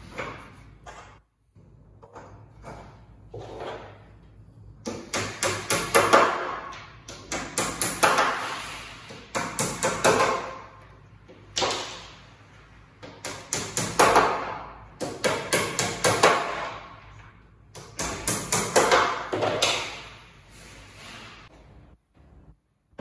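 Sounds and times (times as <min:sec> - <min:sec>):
hammering on wood panels: 0:04.8 - 0:20.2.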